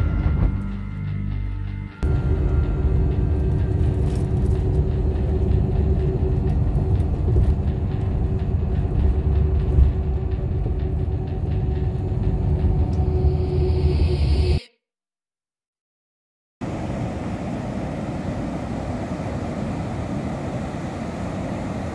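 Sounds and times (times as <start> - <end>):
road and engine rumble inside vehicle: 2.0 - 13.8.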